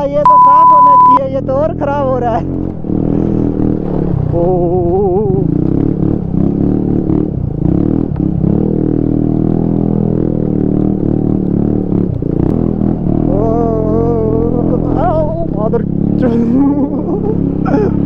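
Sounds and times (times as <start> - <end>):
scooter engine running: 10.4 - 18.0.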